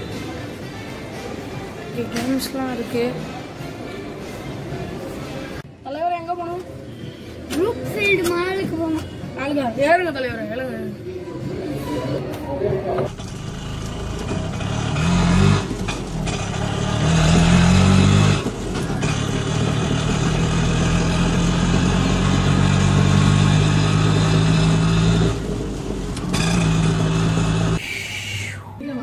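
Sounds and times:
simulated motorcycle engine revving: 13.2 - 27.8.

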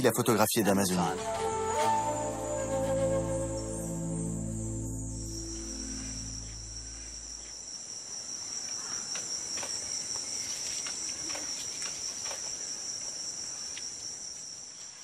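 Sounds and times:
insects buzzing: 0.5 - 15.0
faint ticks and rustles: 8.6 - 15.0.

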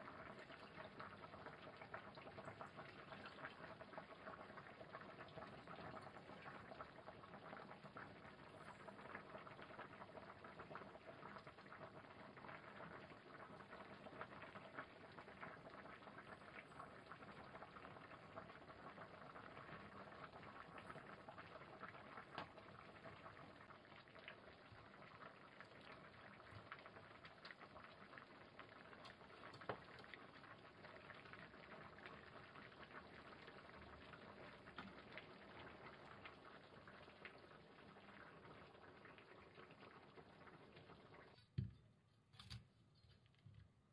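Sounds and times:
soup bubbling in a pot: 0.0 - 41.6
small pops and ticks: 22.3 - 22.6, 29.0 - 30.2.

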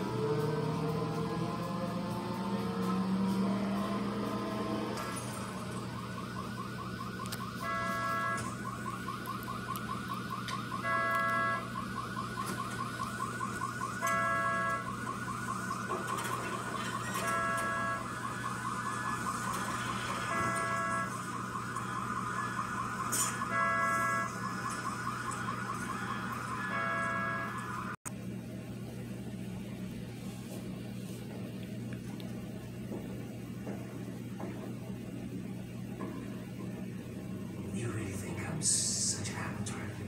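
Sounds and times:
car alarm warbling siren: 0.0 - 28.0
car horn honk: 7.6 - 8.5, 10.8 - 11.7, 14.0 - 14.8, 17.2 - 18.0, 20.3 - 21.2, 23.4 - 24.3, 26.7 - 27.6.

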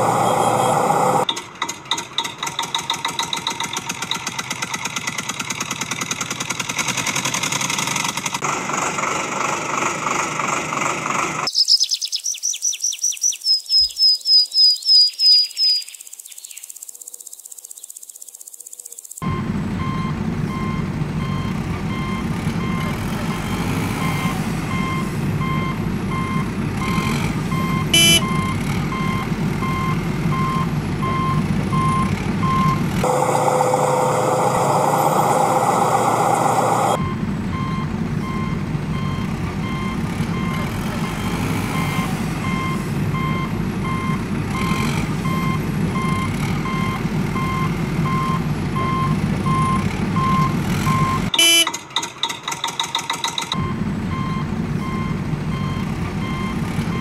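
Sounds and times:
truck reversing beeper: 0.0 - 1.4, 19.2 - 57.0
low truck engine rumble: 0.0 - 11.5, 19.2 - 57.0
rough engine sound: 0.0 - 11.5, 19.2 - 57.0.

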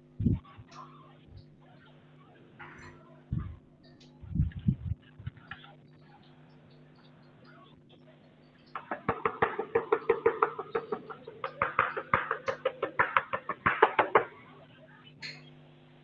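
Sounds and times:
chalk tapping on blackboard: 8.8 - 14.3.

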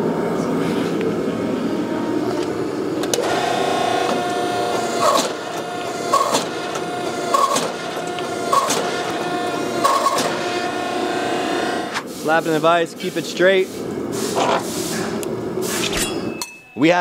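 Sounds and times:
hydraulic pump whining: 1.8 - 12.2.

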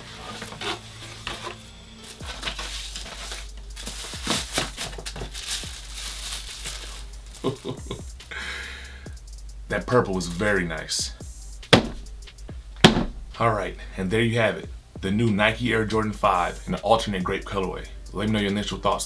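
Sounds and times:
cardboard and plastic crinkling: 0.0 - 8.0
background music with bass: 0.0 - 19.0.

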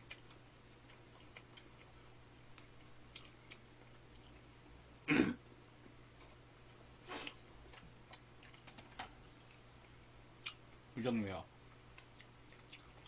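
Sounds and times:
person throat-clearing cough: 5.1 - 5.4.

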